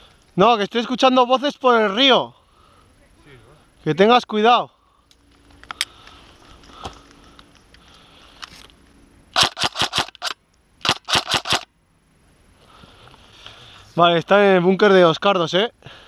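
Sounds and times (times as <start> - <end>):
airsoft rifle shots cracking: 9.4 - 11.7.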